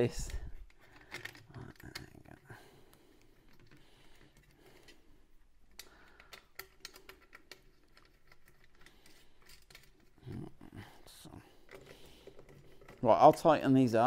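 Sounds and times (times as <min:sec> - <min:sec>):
bolts and washers clicking: 0:05.6 - 0:10.2.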